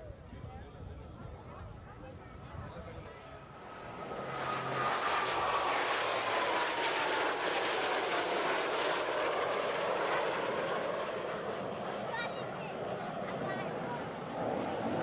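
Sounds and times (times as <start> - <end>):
jet whine falling in pitch: 0.0 - 11.8
jets flying past: 2.1 - 15.0.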